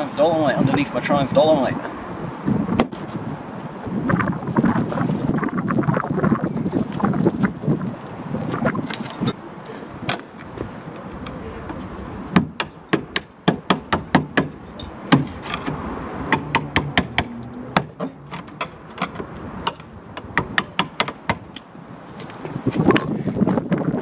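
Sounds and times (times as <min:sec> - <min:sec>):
taps and knocks on rusted metal: 0:02.8 - 0:03.0, 0:10.0 - 0:23.6.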